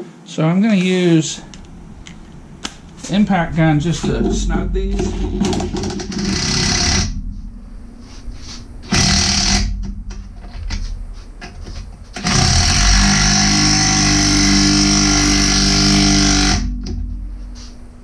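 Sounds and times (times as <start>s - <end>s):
impact gun running: 1.5s - 7.2s, 8.9s - 10.8s, 12.2s - 16.8s.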